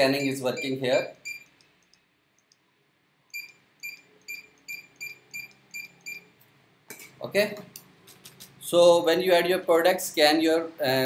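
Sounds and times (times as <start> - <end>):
barcode scanner beeps: 0.0 - 1.5, 3.3 - 6.3.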